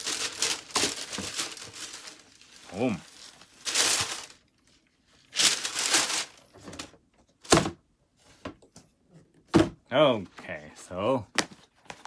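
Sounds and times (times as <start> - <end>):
cardboard and paper rustling: 0.0 - 7.0
box thunk set down: 9.5 - 9.8.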